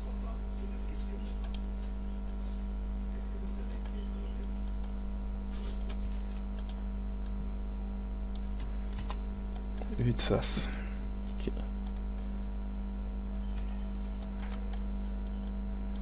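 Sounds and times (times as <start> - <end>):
electrical hum with tones: 0.0 - 16.0.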